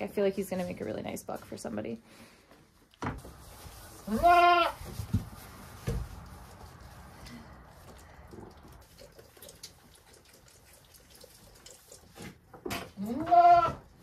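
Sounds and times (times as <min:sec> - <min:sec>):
goat bleating: 0:04.1 - 0:04.8, 0:13.0 - 0:13.9.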